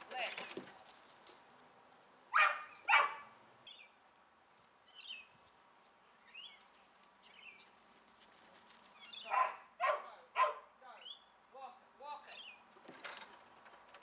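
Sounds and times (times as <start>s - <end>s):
small birds chirping: 1.6s - 8.0s, 8.8s - 9.8s, 10.8s - 12.7s
dog barking: 2.3s - 3.3s, 9.2s - 10.7s.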